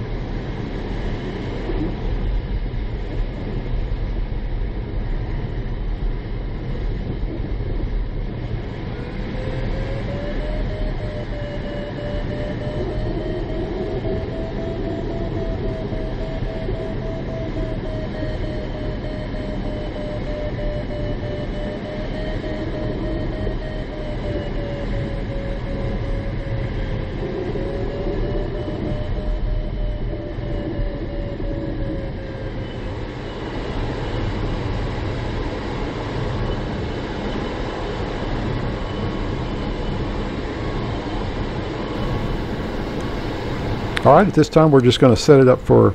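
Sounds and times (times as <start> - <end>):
wavering single tone: 9.0 - 34.4, 42.0 - 45.9
airflow rushing in cockpit: 42.0 - 45.9.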